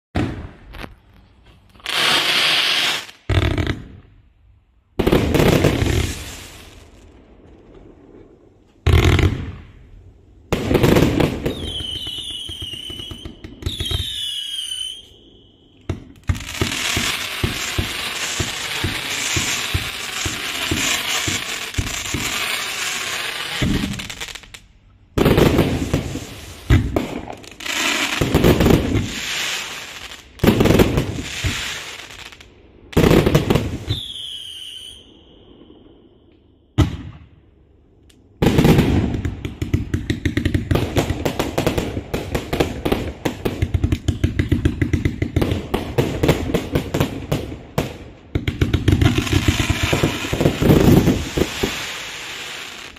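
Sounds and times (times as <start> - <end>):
whistling firework shots: 0.2 - 4.2, 5.0 - 24.6, 25.2 - 37.5, 38.4 - 52.9
firework launch thumps and bursts: 15.9 - 22.4, 23.5 - 24.1, 36.8 - 37.3
rapid-fire firework shots: 15.9 - 22.6, 25.2 - 32.1, 38.4 - 52.9.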